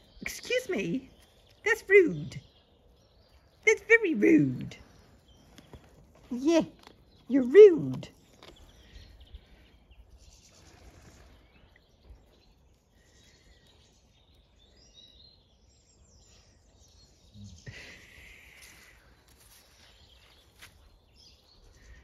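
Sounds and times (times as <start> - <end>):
faint bird chirps: 8.4 - 22.0.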